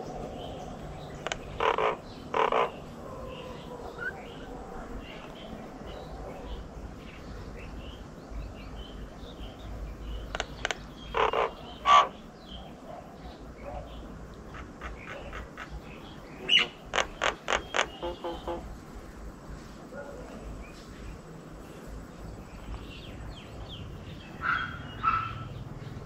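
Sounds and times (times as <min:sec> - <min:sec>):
rough animal calls: 0:00.0 - 0:06.7, 0:10.2 - 0:13.0, 0:13.6 - 0:18.9
faint high chirping: 0:00.0 - 0:19.0.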